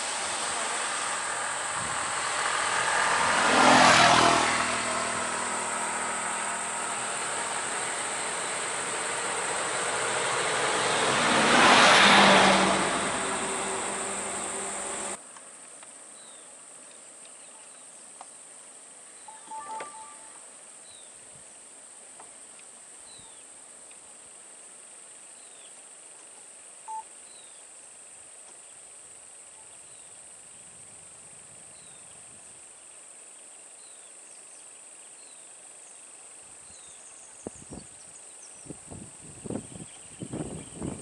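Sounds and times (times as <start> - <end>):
insect drone: 0.0 - 15.2
vehicle engine running: 0.0 - 15.2
brief beep-like tones: 19.3 - 20.4.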